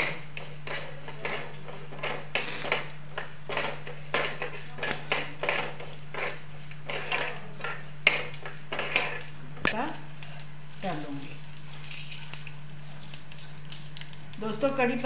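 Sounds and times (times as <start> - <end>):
metal spatula scraping a pan: 3.5 - 9.3.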